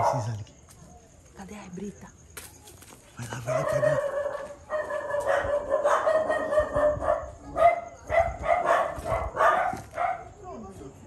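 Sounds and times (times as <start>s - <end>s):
dog barking in short barks: 3.5s - 10.3s.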